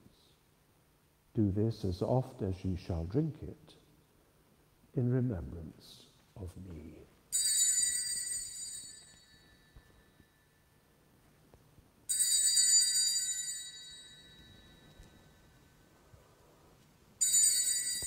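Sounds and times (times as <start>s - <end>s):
bell ringing: 7.3s - 10.6s, 12.1s - 15.8s, 17.2s - 18.0s.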